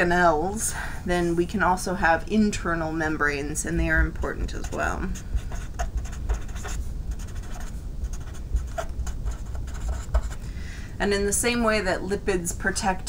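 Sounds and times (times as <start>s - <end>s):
pen scratching on paper: 4.5s - 10.4s.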